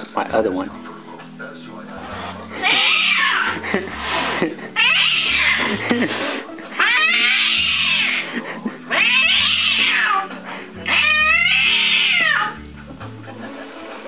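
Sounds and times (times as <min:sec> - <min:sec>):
background music: 0:00.0 - 0:14.0
cat yowling: 0:02.6 - 0:04.2, 0:04.8 - 0:05.8, 0:06.8 - 0:10.3, 0:10.9 - 0:12.6.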